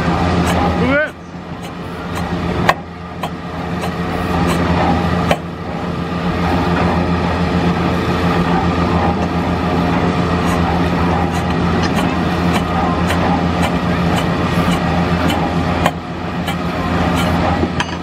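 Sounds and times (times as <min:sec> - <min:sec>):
stationary engine droning: 0:00.0 - 0:18.0.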